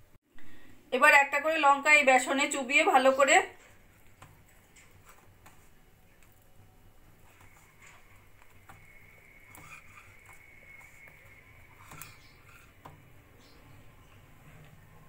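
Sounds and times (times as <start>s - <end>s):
chilli dipped in wet batter: 3.2s - 14.4s.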